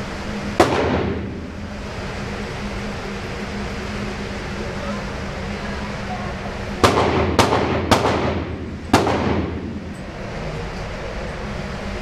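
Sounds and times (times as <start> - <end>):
ventilation hum: 0.0 - 12.0
handgun shots echoing: 0.6 - 1.3, 6.8 - 9.7.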